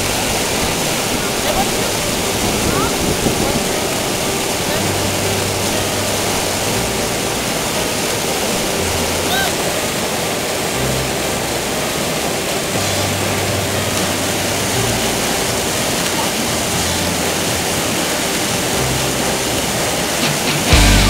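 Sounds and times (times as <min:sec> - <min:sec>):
whitewater rushing: 0:00.0 - 0:21.0.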